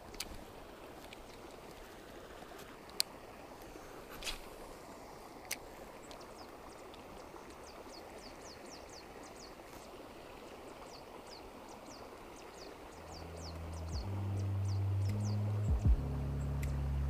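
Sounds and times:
river flowing over rocks: 0.0 - 17.0
music: 14.0 - 17.0.

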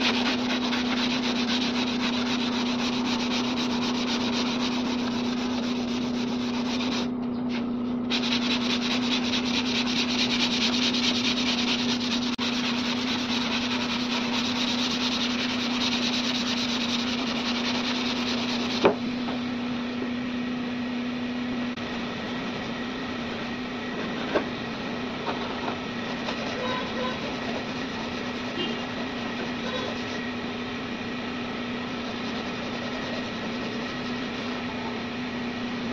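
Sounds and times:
sandpaper rasping: 0.0 - 7.1, 8.1 - 18.9, 25.4 - 30.2, 31.8 - 34.8.

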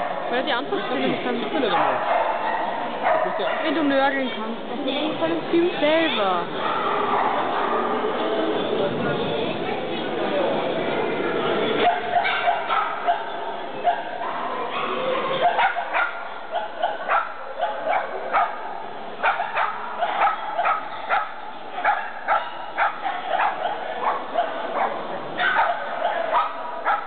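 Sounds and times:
dog barking in rapid yips: 11.8 - 18.6, 19.2 - 27.0.

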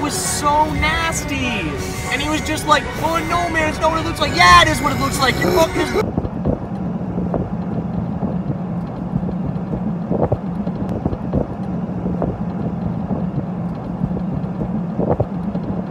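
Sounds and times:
pickup truck road and engine drone: 0.0 - 15.9
irregular bumps: 6.0 - 15.9
wind buffeting microphone: 6.0 - 15.9.

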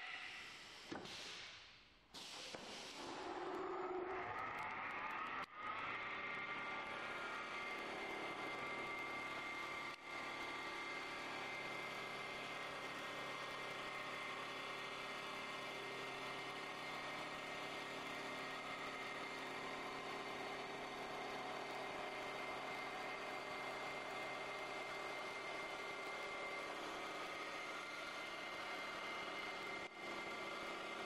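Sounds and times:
cutter hissing through wood: 2.2 - 4.0
lathe machine whine: 3.0 - 31.0.

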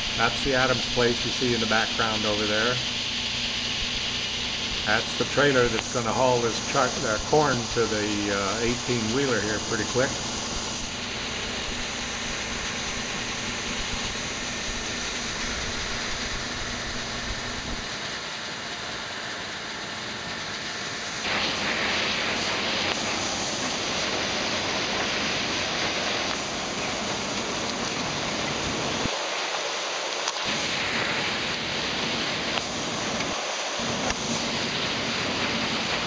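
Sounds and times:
combine harvester running: 0.0 - 17.9.

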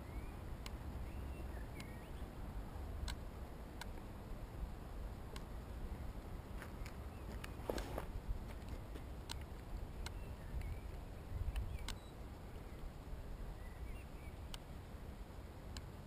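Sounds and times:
faint bird chirps: 0.0 - 2.8, 9.4 - 14.6
wind rumbling on microphone: 0.0 - 16.0
faint clicks: 3.0 - 3.2, 5.3 - 5.5, 14.4 - 14.7.

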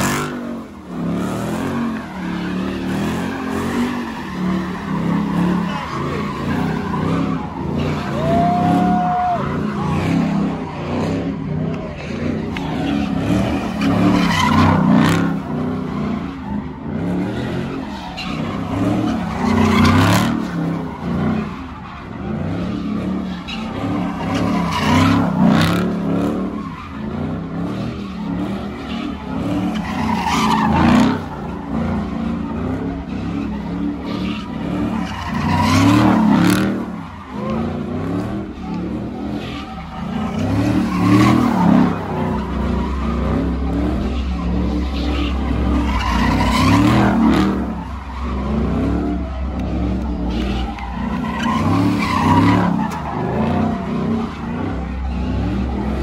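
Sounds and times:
car engine revving hard: 0.0 - 16.2, 16.8 - 56.0
tyres squealing: 28.2 - 56.0.

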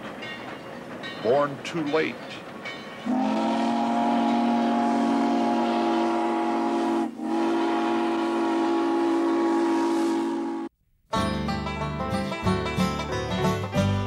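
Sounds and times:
steam locomotive whistle: 3.0 - 10.7.

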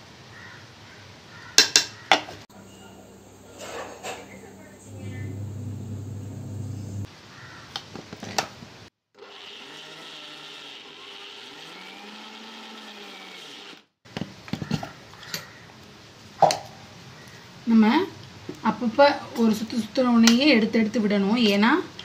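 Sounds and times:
mixer grinder motor: 4.8 - 7.1, 9.2 - 13.9.

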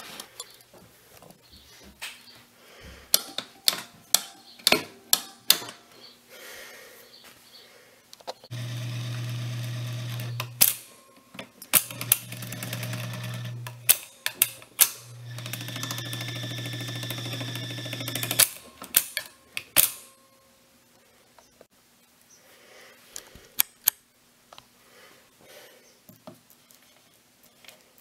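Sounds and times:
record changer motor humming: 8.5 - 10.7, 11.8 - 19.0.

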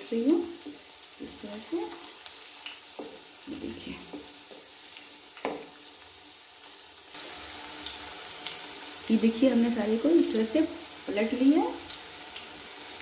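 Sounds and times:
food sizzling in hot oil: 0.0 - 13.0
wooden spatula turning food: 0.5 - 8.8.

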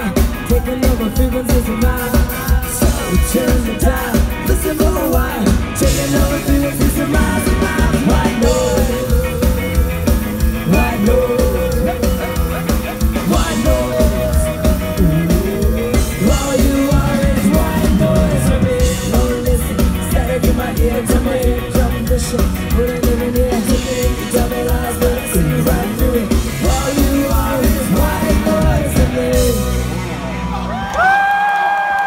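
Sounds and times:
person singing: 0.0 - 30.0
ska punk band playing live: 0.0 - 30.8.

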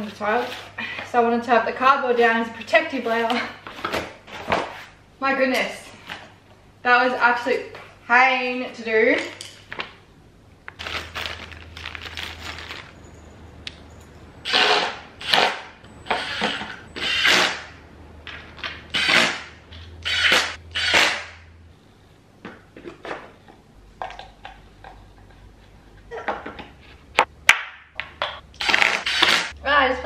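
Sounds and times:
rustling handling noises: 10.7 - 14.3.

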